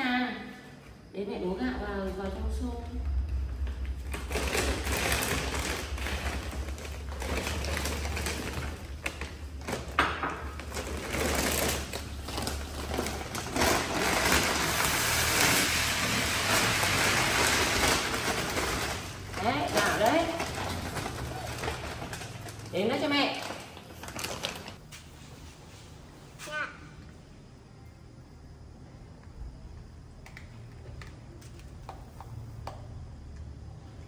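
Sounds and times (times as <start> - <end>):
rice pouring into plastic bucket: 4.0 - 22.7
plastic bag crinkling: 4.0 - 24.8.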